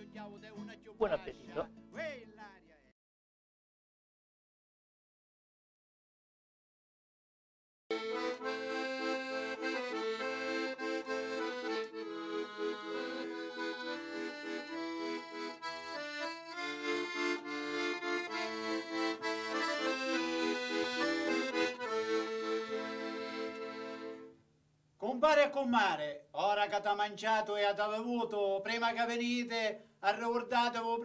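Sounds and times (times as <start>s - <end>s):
piano accordion playing folk tune: 7.9s - 24.3s.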